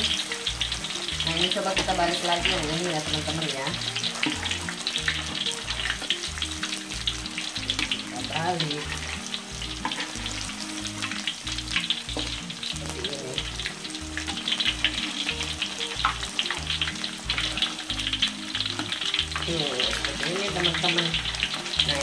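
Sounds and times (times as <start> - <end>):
tofu sizzling in hot oil: 0.0 - 22.0
metal spatula stirring: 0.2 - 6.2, 7.1 - 11.2.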